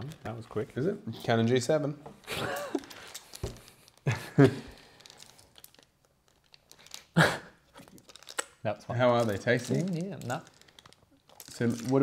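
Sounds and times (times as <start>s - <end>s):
plastic bag crinkling: 2.4s - 12.0s
plastic tokens being handled: 2.4s - 12.0s.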